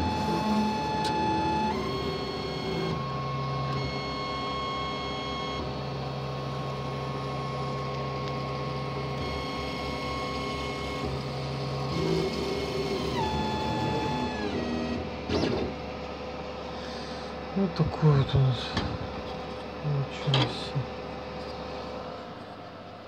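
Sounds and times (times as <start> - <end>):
laser cutter motors whining: 0.0 - 16.5
steady hum: 5.6 - 23.0.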